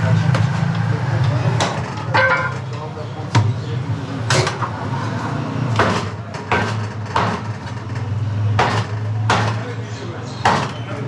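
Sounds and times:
cleaver chopping on wooden block: 5.8s - 7.4s, 8.5s - 9.6s, 10.4s - 10.8s.

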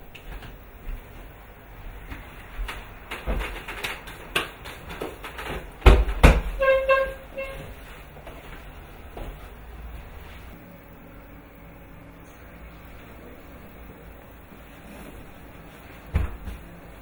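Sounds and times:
chair knocking: 3.1s - 7.5s, 16.1s - 16.6s.

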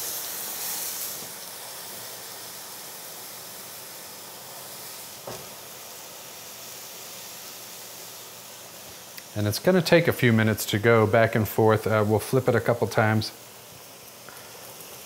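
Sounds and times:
water hissing in hot pan: 0.0s - 15.0s
small knock: 5.2s - 5.5s.

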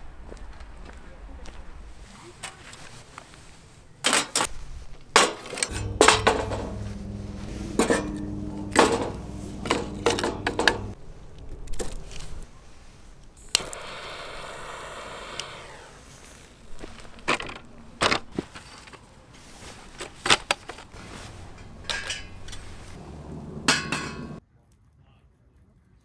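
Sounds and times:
steady hiss: 13.4s - 16.4s
dishes and cutlery clinking: 23.5s - 24.4s.

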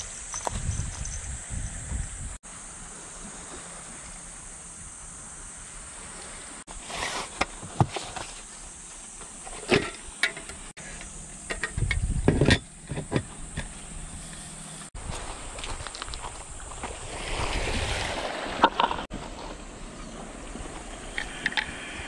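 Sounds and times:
outdoor ambience hiss: 0.0s - 22.0s
camping gear clicks and knocks: 0.3s - 1.2s, 7.0s - 13.8s, 18.6s - 19.6s.

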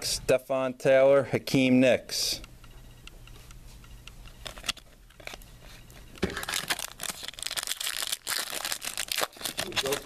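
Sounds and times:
plastic foil wrapper crackling: 6.3s - 10.0s.

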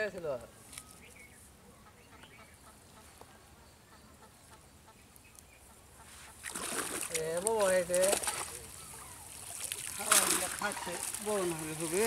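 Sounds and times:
faint bird calls: 0.5s - 6.8s, 8.0s - 12.0s
water sloshing and splashing: 6.3s - 12.0s.

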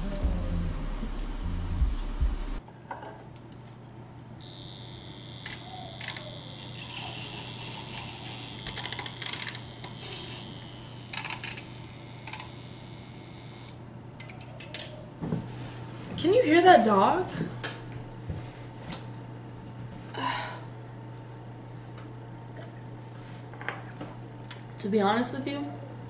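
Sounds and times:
high-pitched whine: 0.0s - 2.6s, 4.4s - 13.8s
low steady hum: 0.0s - 26.0s.

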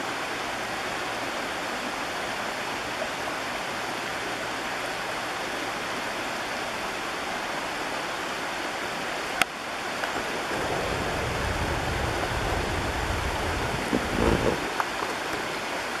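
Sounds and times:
creek water running over stones: 0.0s - 16.0s
low rumble: 10.1s - 14.8s.

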